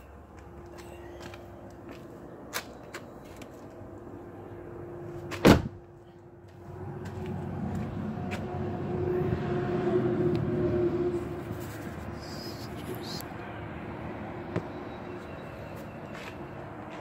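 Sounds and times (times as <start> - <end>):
car door slamming: 5.3 - 5.8.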